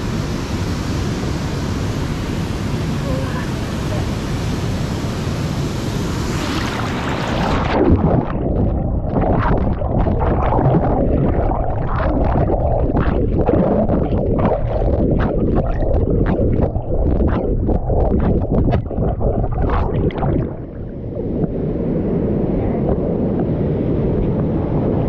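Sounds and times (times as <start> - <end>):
underwater current rumble: 6.1 - 23.5
bubbles crackling and gurgling: 6.3 - 22.0.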